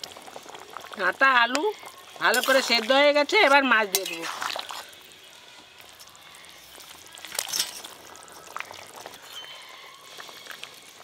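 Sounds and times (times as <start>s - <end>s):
liquid splashing and bubbling: 4.0s - 5.2s.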